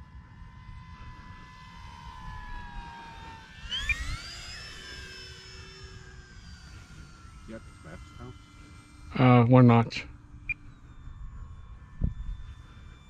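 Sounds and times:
model plane motor whining: 0.0 - 13.0
wind rumble on microphone: 10.9 - 13.0.

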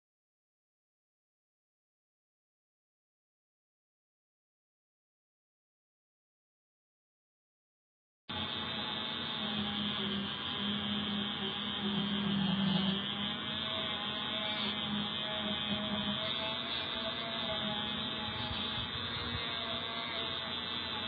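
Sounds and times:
rotary tool motor hum: 8.3 - 21.0
buffing wheel rubbing on metal: 9.4 - 21.0.

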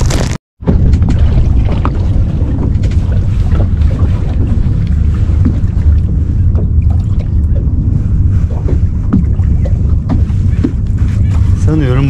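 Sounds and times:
wind buffeting microphone: 0.0 - 12.0
faint wash of water: 0.8 - 11.9.

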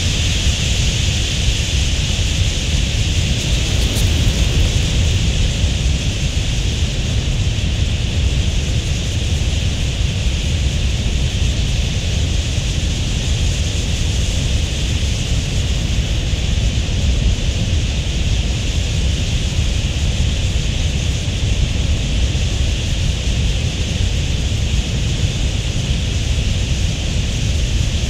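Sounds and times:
flock wingbeats rushing: 2.8 - 6.6.

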